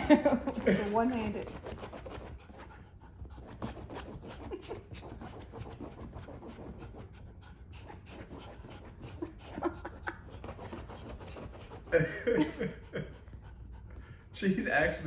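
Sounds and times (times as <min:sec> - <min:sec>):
dog panting: 0:00.1 - 0:15.0
claws scratching upholstery: 0:08.0 - 0:12.0.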